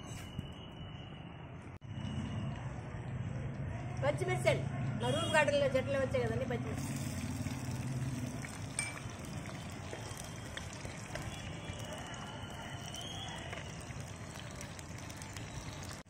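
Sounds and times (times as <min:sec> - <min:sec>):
chillies sizzling in hot oil: 0:06.6 - 0:16.0.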